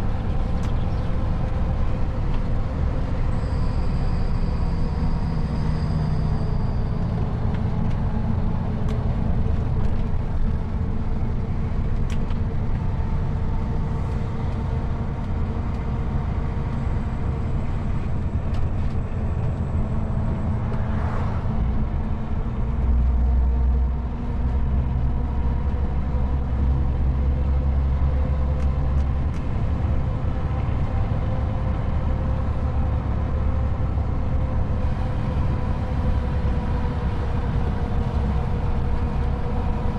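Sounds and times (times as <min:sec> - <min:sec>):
deep rumble: 0:00.0 - 0:39.9
diesel truck engine drone: 0:00.0 - 0:39.9
road noise: 0:00.0 - 0:39.9
car passing whoosh: 0:20.4 - 0:21.8.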